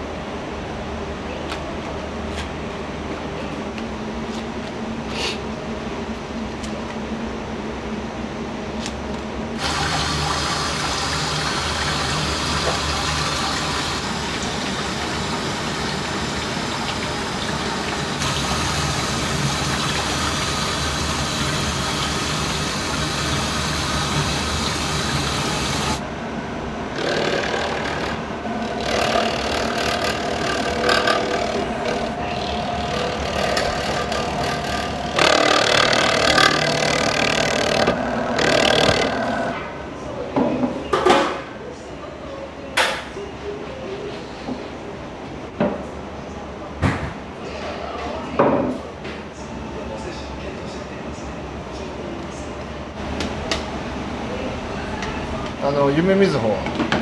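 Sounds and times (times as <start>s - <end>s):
kitchen machinery humming: 9.4s - 41.3s
water running: 9.6s - 26.0s, 28.9s - 37.7s.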